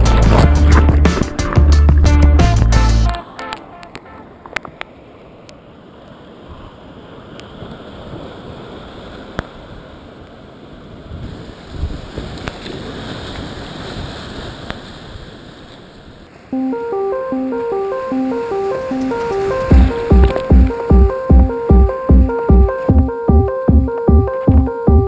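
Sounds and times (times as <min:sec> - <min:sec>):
wind buffeting microphone: 0:10.9 - 0:14.5.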